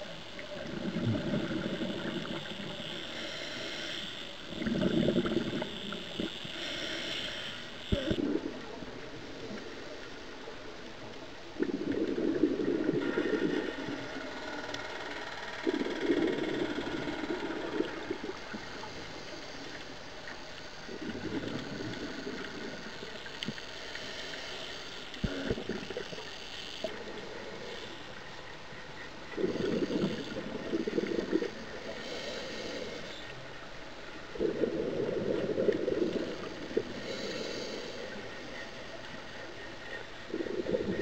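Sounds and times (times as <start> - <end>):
steady regulator hiss: 0.0 - 41.0
air bubbles exhaled underwater: 0.5 - 2.8, 4.5 - 6.3, 7.9 - 9.6, 11.5 - 14.1, 20.8 - 23.6, 29.3 - 31.8, 34.3 - 37.3, 40.3 - 41.0.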